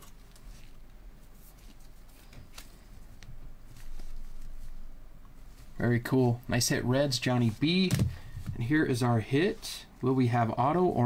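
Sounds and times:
cards rustling: 0.0s - 4.8s.

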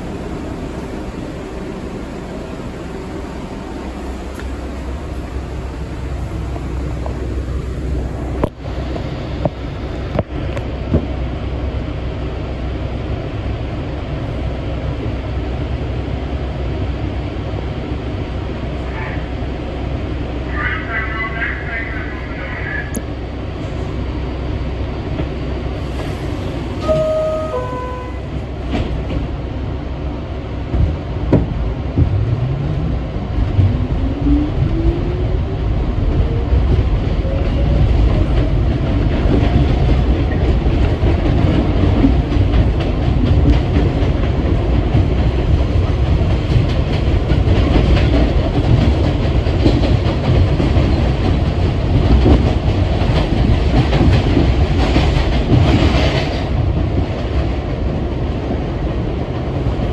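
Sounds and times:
subway car rumble: 0.0s - 59.9s
subway motors whining: 0.0s - 59.9s
wheels knocking on rails: 36.1s - 58.1s.

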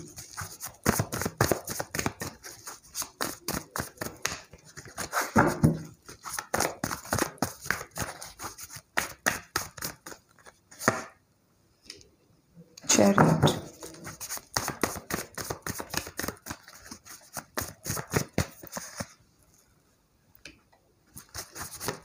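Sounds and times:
cards being shuffled: 0.1s - 11.1s, 13.7s - 19.1s, 21.1s - 22.0s.

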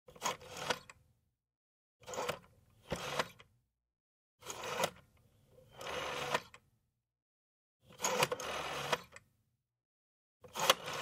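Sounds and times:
rotary phone dial whirring: 0.1s - 1.0s, 2.0s - 3.6s, 4.4s - 6.7s, 7.8s - 9.3s, 10.4s - 11.0s.

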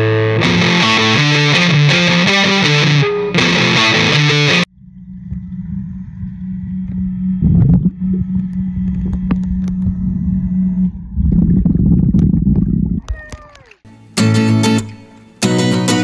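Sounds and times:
engine running: 4.6s - 13.0s
low rumble: 4.7s - 13.3s.

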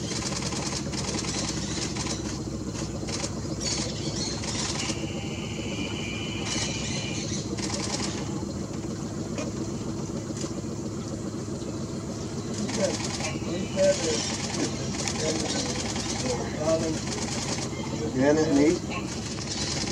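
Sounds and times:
boat engine idling: 0.0s - 19.9s
high buzzing: 3.6s - 8.4s.

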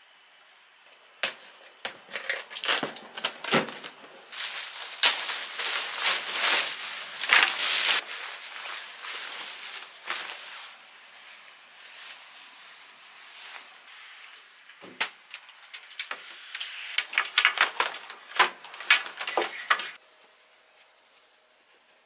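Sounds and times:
plastic bag crinkling: 1.9s - 12.3s, 15.4s - 20.0s
fabric rustling: 3.1s - 13.9s.

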